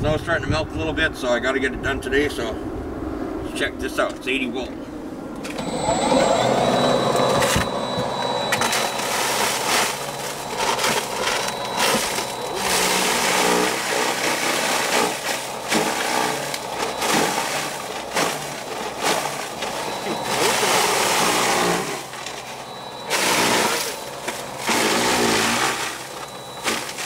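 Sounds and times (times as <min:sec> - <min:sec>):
electric snow shovel whining: 0:05.4 - 0:27.0
auger churning wet snow: 0:05.6 - 0:27.0.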